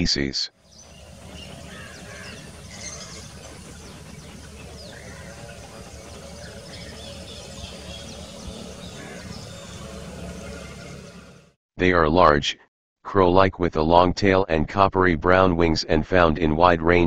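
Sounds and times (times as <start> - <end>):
small birds chirping: 0.6 - 11.4
low steady rumble: 0.6 - 11.6.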